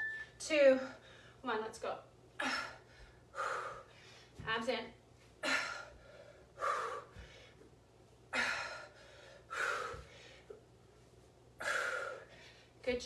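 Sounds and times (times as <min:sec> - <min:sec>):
woman breathing hard: 0:02.4 - 0:04.4, 0:05.4 - 0:07.7, 0:08.3 - 0:10.6, 0:11.6 - 0:12.8.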